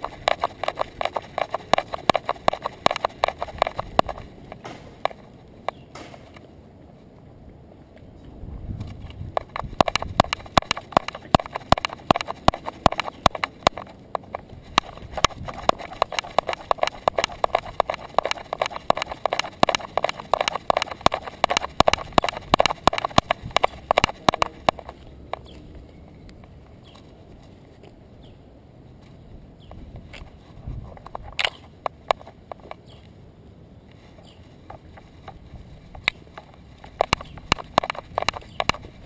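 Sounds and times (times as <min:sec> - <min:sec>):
dog claws clicking on pavement: 0:00.0 - 0:06.4, 0:08.8 - 0:25.7, 0:30.1 - 0:33.0, 0:34.0 - 0:39.0.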